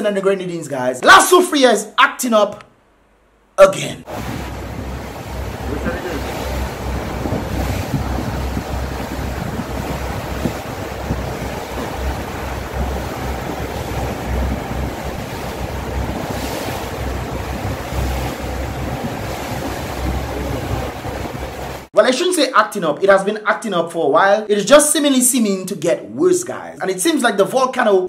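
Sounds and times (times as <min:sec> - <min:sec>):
water rushing against boat: 0:04.0 - 0:21.9
wind buffeting microphone: 0:04.1 - 0:21.9.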